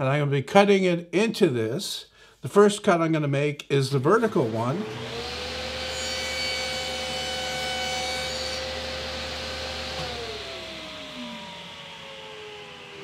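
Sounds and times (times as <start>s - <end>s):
saw blade spinning down: 4.2s - 13.0s
table saw cutting plywood: 4.2s - 13.0s.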